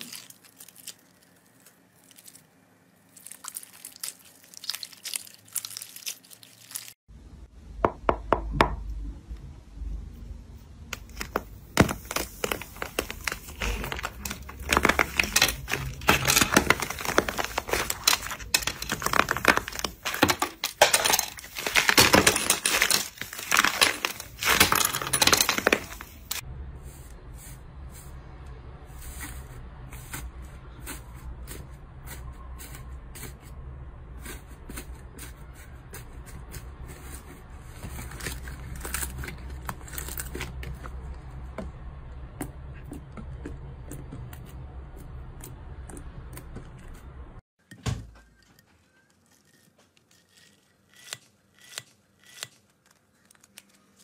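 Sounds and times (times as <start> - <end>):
slime crust cracking and crunching: 0.0 - 7.0.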